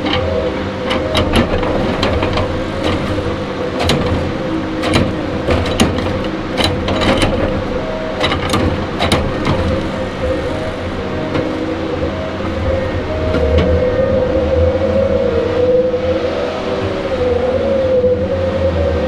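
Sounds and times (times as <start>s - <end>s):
logs clattering: 0.0s - 13.8s
diesel engine running: 0.0s - 17.4s.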